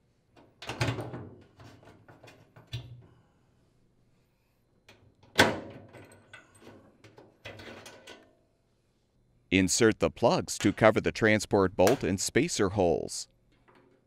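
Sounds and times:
metal bolt scraping and rattling: 0:05.9 - 0:08.3.

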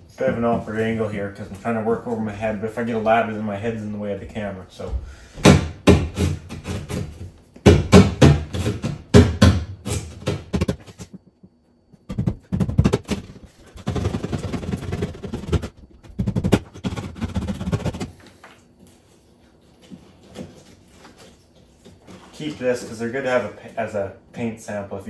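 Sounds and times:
drywall being sawn by hand: 0:05.4 - 0:11.0, 0:12.4 - 0:18.2.

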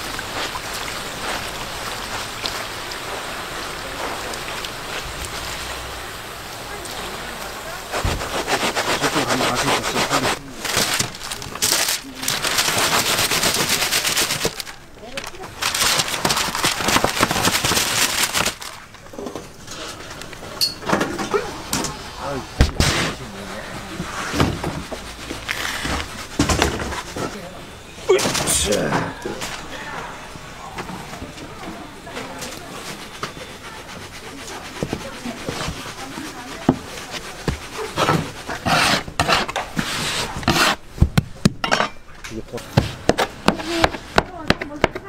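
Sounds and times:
hot oil crackling and sizzling: 0:00.0 - 0:19.0, 0:21.6 - 0:27.2
utensils scraping: 0:32.4 - 0:40.8.

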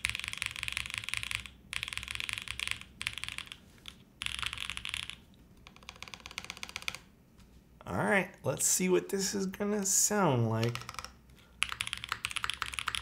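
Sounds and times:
mechanical keyboard typing: 0:00.0 - 0:07.1, 0:10.6 - 0:13.0.

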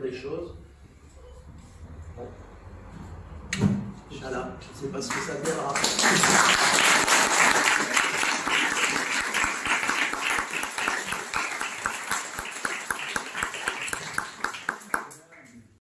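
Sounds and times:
audience applauding: 0:05.0 - 0:15.7.

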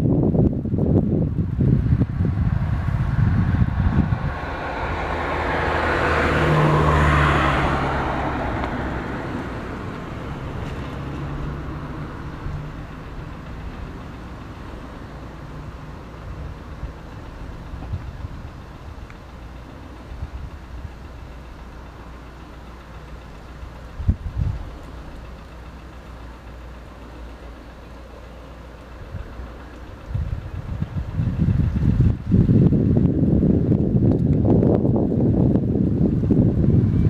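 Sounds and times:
wind buffeting microphone: 0:00.0 - 0:22.1, 0:23.1 - 0:26.0, 0:28.9 - 0:37.0
car passing by: 0:01.9 - 0:14.9.

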